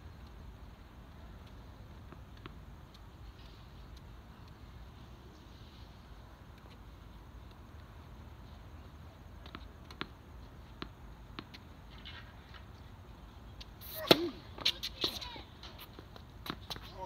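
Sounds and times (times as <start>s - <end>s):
shoes squeaking on court: 8.4s - 17.0s
tennis ball bouncing on court: 9.4s - 12.2s, 13.9s - 16.9s.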